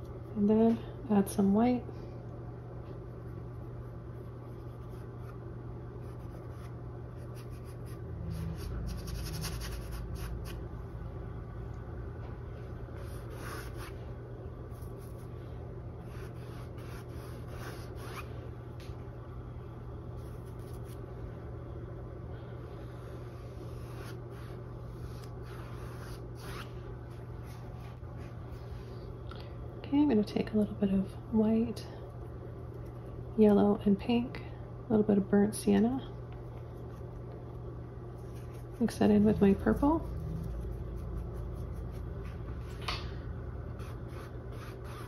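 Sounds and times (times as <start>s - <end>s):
steady low hum: 0.0s - 45.0s
paintbrush rubbing on canvas: 13.0s - 14.0s, 22.9s - 28.7s, 43.8s - 45.0s.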